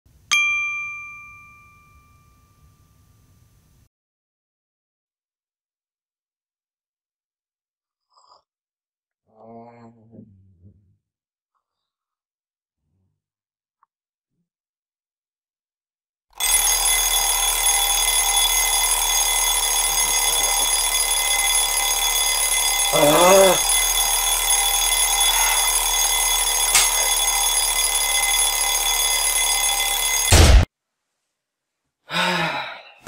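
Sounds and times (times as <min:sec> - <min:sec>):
smartphone alarm ringing: 0:16.4 - 0:30.4
person groaning sleepily: 0:22.9 - 0:23.7, 0:32.1 - 0:33.0.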